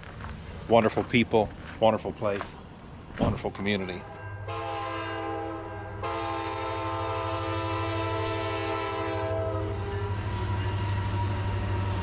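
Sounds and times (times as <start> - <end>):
train rumbling by: 0.0 - 12.0
locomotive air horn blast: 4.5 - 12.0.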